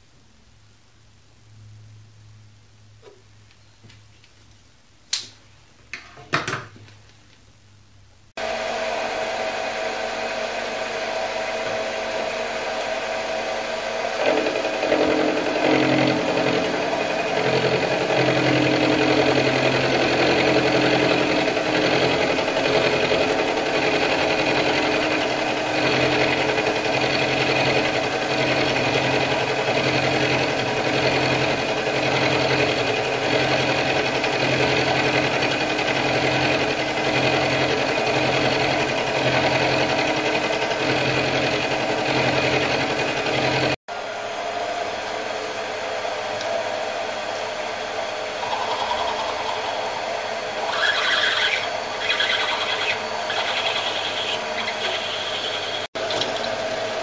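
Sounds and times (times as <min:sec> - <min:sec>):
end mill cutting metal: 0:08.4 - 0:43.8, 0:46.2 - 0:57.0
machine motor whine: 0:08.4 - 0:57.0.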